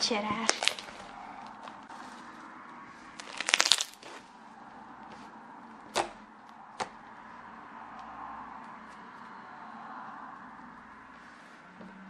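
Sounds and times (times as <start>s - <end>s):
slime crunchy crackle: 0.1s - 2.0s, 3.2s - 4.3s
slime popping: 0.4s - 1.0s, 3.2s - 4.2s.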